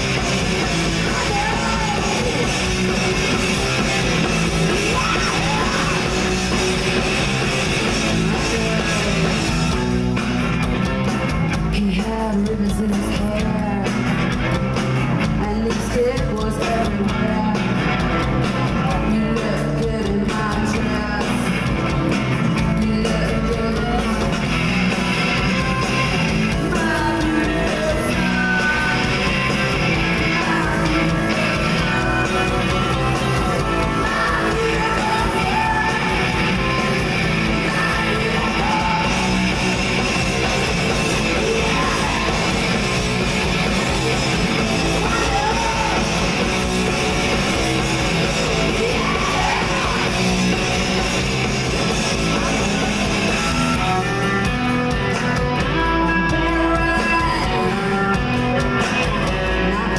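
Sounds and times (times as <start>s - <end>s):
bass guitar: 0.0s - 59.9s
drums: 0.0s - 59.9s
electric guitar: 0.0s - 59.9s
woman singing: 0.8s - 2.8s, 4.7s - 6.6s, 11.7s - 14.1s, 15.3s - 18.0s, 18.8s - 21.7s, 22.6s - 24.5s, 25.4s - 39.4s, 41.0s - 42.7s, 44.8s - 46.2s, 48.6s - 50.3s, 56.1s - 58.2s.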